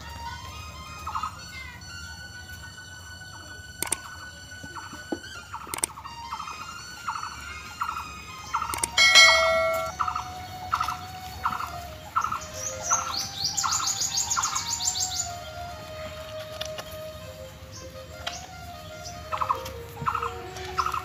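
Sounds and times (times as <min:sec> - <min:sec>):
bell-like ring: 0:09.0 - 0:10.0
fast high chirps: 0:09.0 - 0:10.0.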